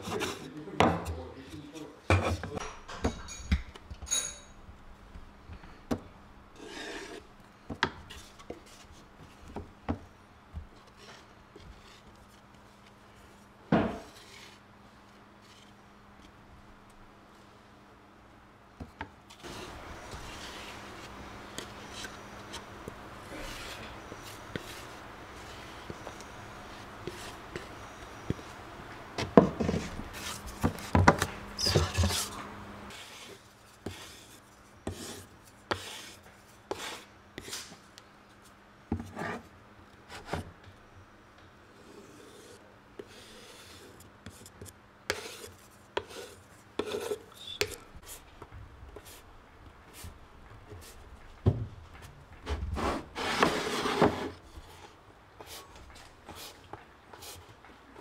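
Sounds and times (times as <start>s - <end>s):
faint steady hum: 0.0s - 58.0s
spatula scraping wooden board: 6.6s - 7.3s, 19.4s - 28.5s, 29.3s - 37.6s, 41.8s - 47.8s, 52.8s - 54.8s.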